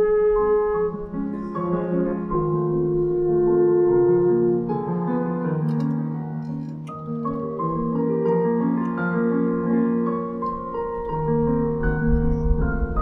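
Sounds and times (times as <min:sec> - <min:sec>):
french horn melody: 0:00.0 - 0:10.1.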